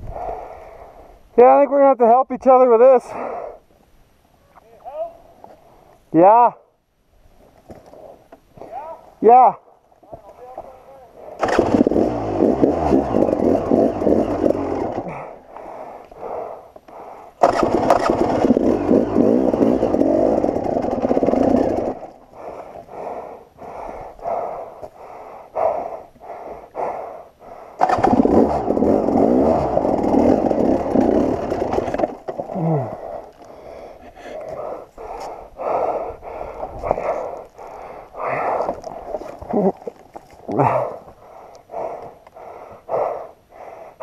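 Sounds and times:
rear tyre scrabbling on rock: 11.4 - 15.2, 17.4 - 22.3, 27.8 - 33.6, 36.7 - 40.6
motorcycle engine revving hard: 11.4 - 15.3, 17.4 - 22.2, 27.8 - 32.6.

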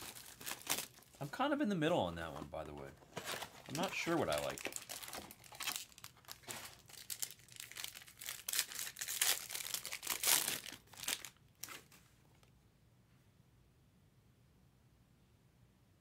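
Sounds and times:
foil pack tearing and crinkling: 0.0 - 1.1, 3.2 - 11.4.

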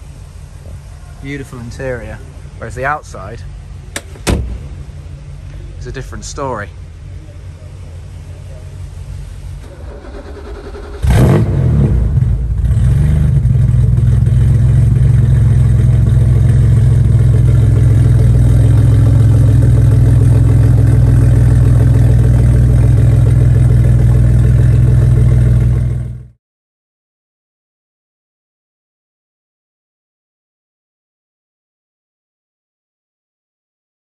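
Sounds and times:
car engine starting and idling: 0.0 - 26.4.

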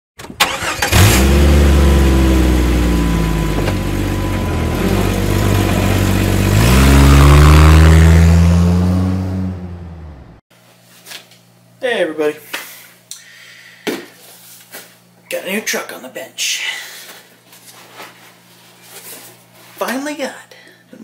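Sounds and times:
engine revving: 0.4 - 10.4.

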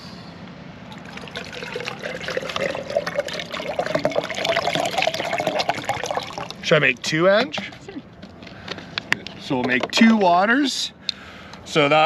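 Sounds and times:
water pouring into a cup: 0.9 - 6.8.

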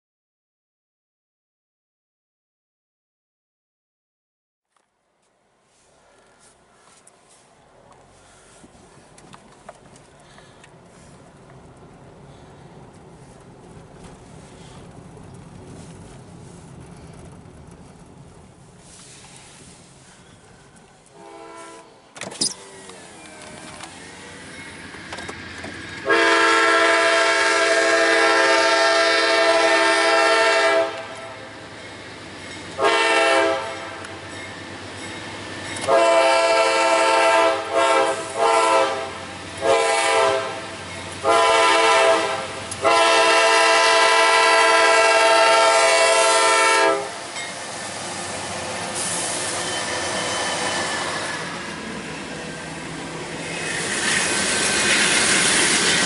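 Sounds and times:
train rumble: 5.5 - 56.0
locomotive air horn blasts: 21.1 - 22.0, 26.0 - 31.4, 32.8 - 34.2, 35.8 - 47.3.

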